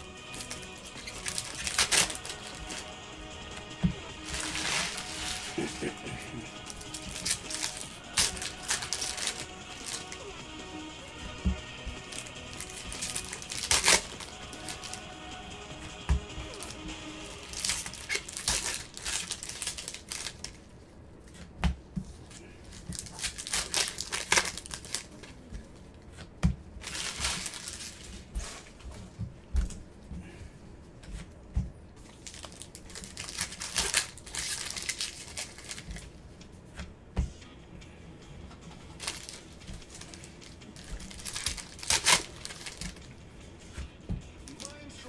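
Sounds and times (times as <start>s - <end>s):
wrappers tearing and crinkling: 0.0s - 20.7s, 22.3s - 25.5s, 26.8s - 28.8s, 32.0s - 36.2s, 38.9s - 43.2s.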